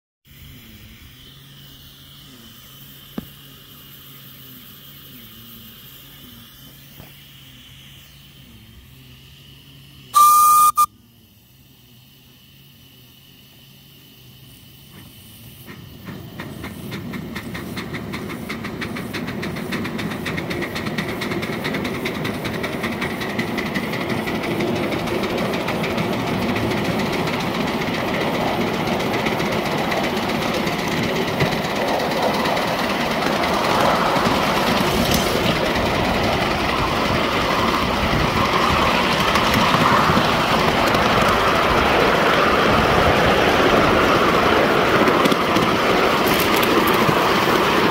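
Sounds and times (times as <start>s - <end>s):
steam locomotive exhaust beats: 0.3s - 47.9s
wheels on rails: 11.7s - 47.9s.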